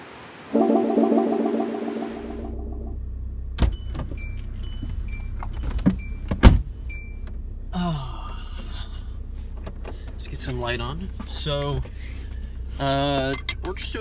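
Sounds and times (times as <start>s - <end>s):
short falling whine: 0.6s - 3.2s
car running hum: 2.5s - 14.0s.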